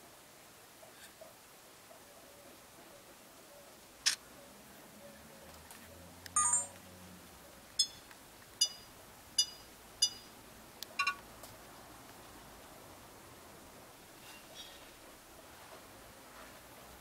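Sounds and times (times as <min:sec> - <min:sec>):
camera beeping: 0:06.4 - 0:06.8.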